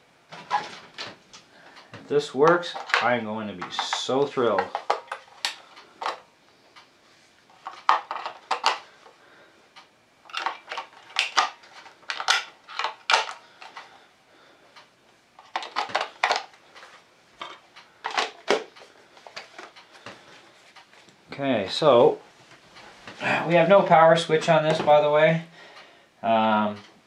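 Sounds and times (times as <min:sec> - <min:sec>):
small hard objects clattering: 0:10.3 - 0:13.8.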